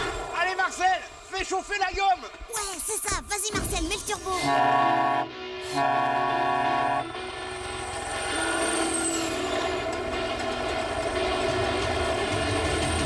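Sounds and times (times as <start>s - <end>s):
truck air horn chord: 4.4s - 11.7s
vehicle running noise: 4.9s - 13.0s.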